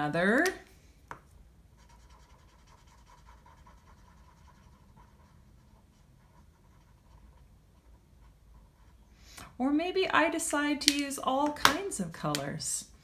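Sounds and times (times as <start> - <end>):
marker scratching on paper: 1.8 - 9.0.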